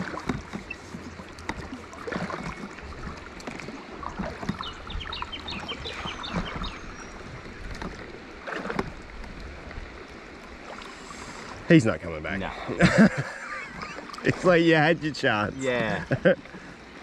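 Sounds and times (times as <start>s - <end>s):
water against raft hull: 0.0s - 17.0s
bird chirping: 4.5s - 7.2s.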